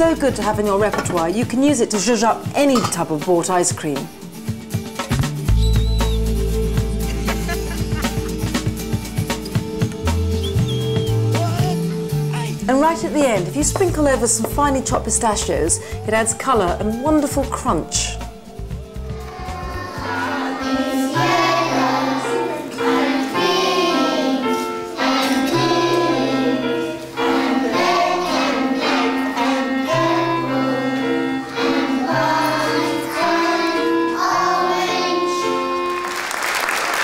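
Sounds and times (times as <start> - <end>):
instrumental accompaniment: 0.0 - 37.0
children singing: 15.3 - 35.9.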